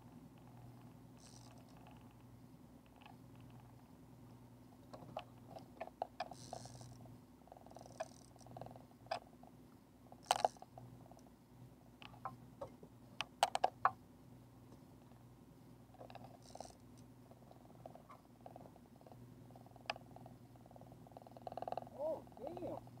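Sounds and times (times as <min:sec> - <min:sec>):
fishing reel clicks and knocks: 0:01.2 - 0:01.7, 0:06.2 - 0:06.9, 0:07.8 - 0:08.5, 0:10.2 - 0:10.6, 0:16.0 - 0:16.8.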